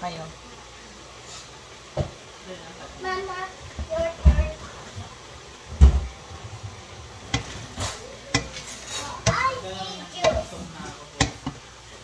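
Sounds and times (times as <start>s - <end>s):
faint sizzle: 0.0s - 12.0s
stirring food in a wok: 3.6s - 12.0s
wooden spatulas knocking wok: 7.3s - 9.6s, 10.2s - 11.7s.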